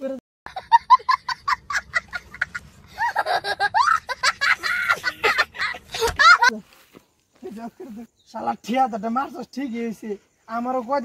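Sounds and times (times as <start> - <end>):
boy laughing hard: 0.5 - 6.6.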